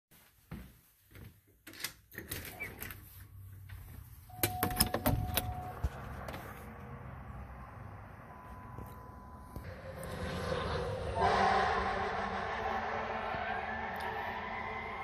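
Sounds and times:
low hum: 5.2s - 15.0s
steady beep: 7.8s - 9.8s.

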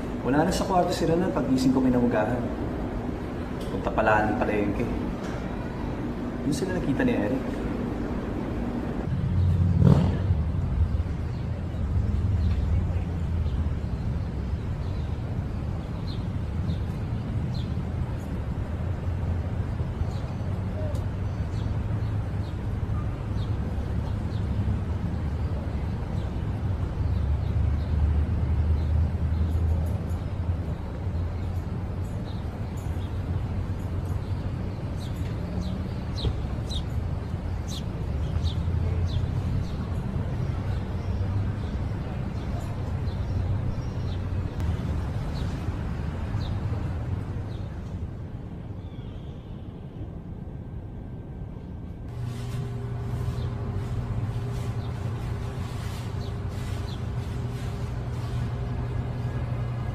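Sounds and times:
low engine-like hum: 0.0s - 59.9s
low outdoor rumble: 0.0s - 59.9s.

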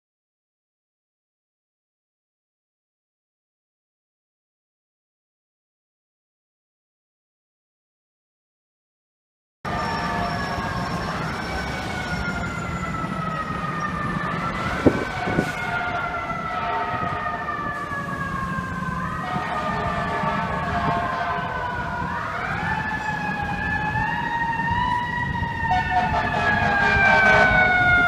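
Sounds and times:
fire engine siren wailing: 9.7s - 28.0s
low rumble of street traffic: 9.7s - 28.0s.

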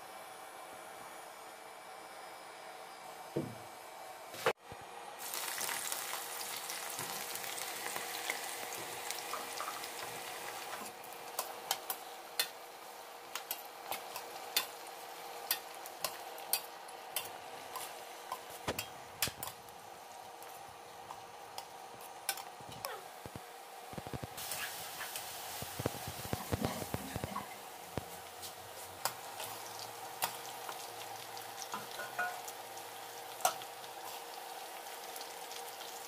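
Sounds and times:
food sizzling in hot oil: 5.2s - 22.7s, 23.7s - 36.0s
spatula clinking against pan: 31.8s - 32.4s.

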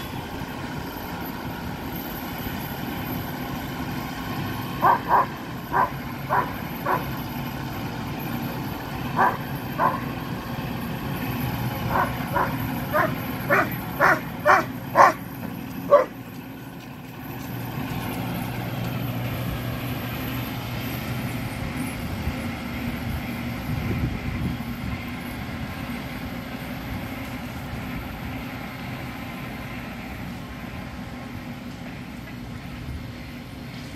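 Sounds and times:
tractor engine running: 0.0s - 33.9s
dog barking: 4.8s - 7.1s, 9.2s - 10.1s, 11.9s - 15.3s, 15.9s - 16.2s.

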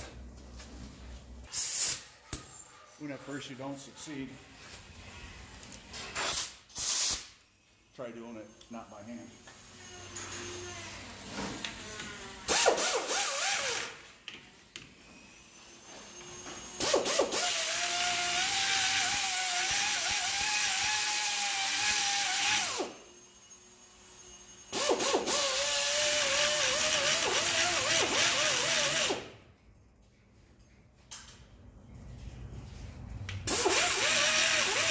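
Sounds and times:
pneumatic air tool whine: 1.5s - 2.0s, 5.9s - 14.1s, 15.0s - 29.4s, 33.5s - 34.9s
loud air hiss: 1.5s - 2.1s, 6.3s - 7.4s.

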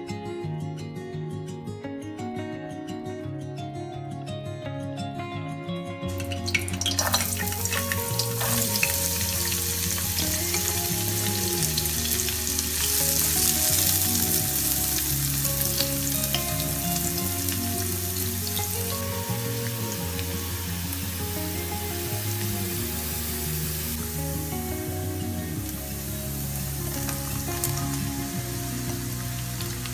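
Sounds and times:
onion sizzling in frying pan: 6.2s - 29.9s.

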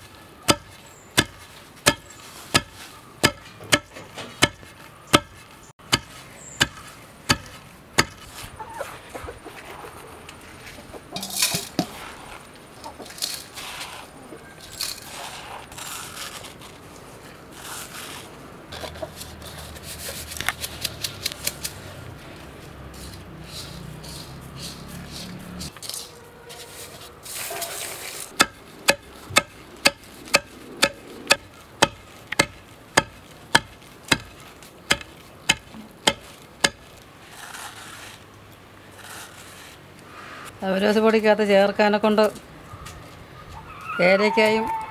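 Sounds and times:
hands scraping powder in bowl: 10.4s - 12.5s, 13.1s - 16.9s, 22.8s - 28.4s, 36.3s - 38.3s, 38.9s - 39.8s.

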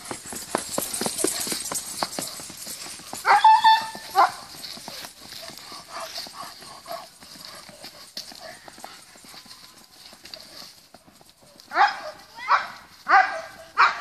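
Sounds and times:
horse hoofbeats on dirt: 0.0s - 14.0s
dog yelping bark: 3.2s - 4.4s, 11.7s - 14.0s.

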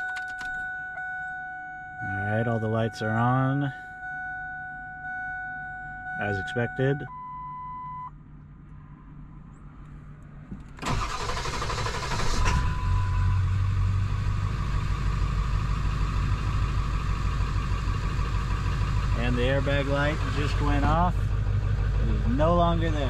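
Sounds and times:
diesel engine cranking and idling: 10.6s - 23.0s.

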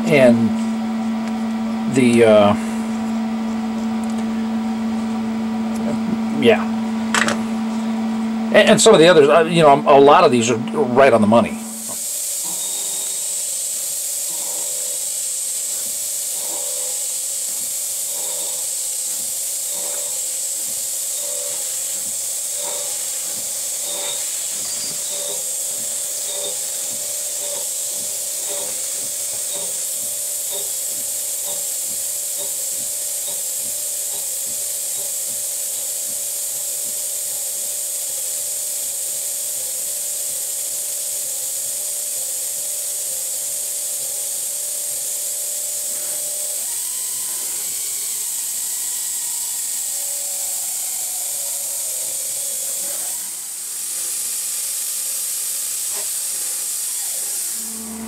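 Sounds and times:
mill spindle hiss and whine: 0.0s - 58.0s
cutting ticks: 15.6s - 35.1s.

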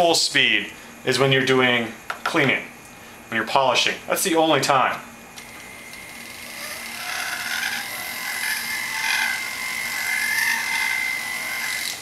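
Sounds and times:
rotary tool grinding wax: 5.4s - 12.0s
rotary tool whining: 5.4s - 12.0s.

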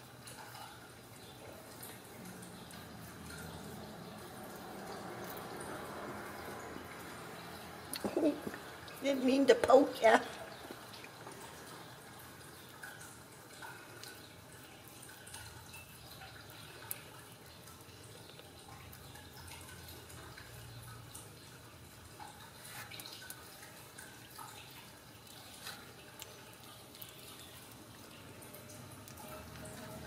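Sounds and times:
small wet clicks: 6.4s - 30.0s.

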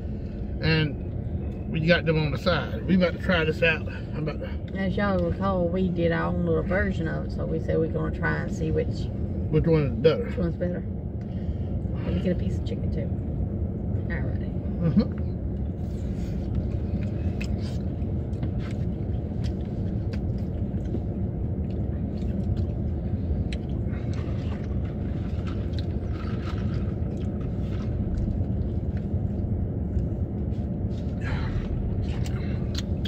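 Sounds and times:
vehicle rumble inside cabin: 0.0s - 33.0s
chewing: 16.5s - 29.2s, 30.9s - 33.0s.

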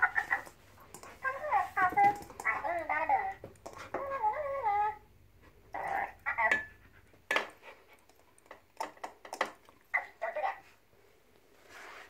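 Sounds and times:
ball clicking and knocking on floor: 1.8s - 4.0s, 7.3s - 9.7s.

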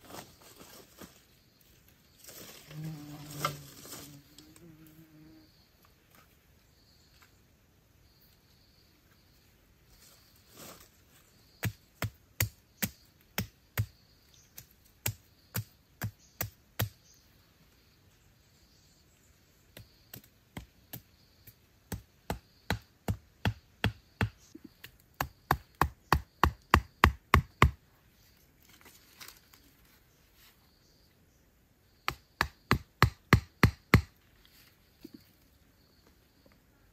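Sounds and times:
machete chopping wood: 11.6s - 14.0s, 21.9s - 27.8s, 32.1s - 34.1s.

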